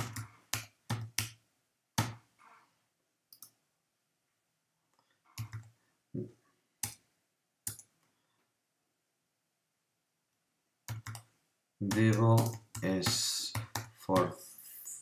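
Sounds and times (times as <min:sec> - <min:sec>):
slow typing on keyboard: 0:00.0 - 0:01.4, 0:03.3 - 0:03.6, 0:04.9 - 0:05.8, 0:06.8 - 0:08.1, 0:10.8 - 0:14.0.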